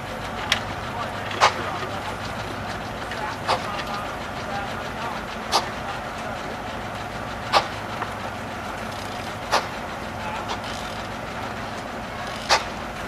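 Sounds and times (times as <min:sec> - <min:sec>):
sawmill engine humming: 0:00.0 - 0:13.0
sawmill headblocks knocking: 0:00.3 - 0:06.6.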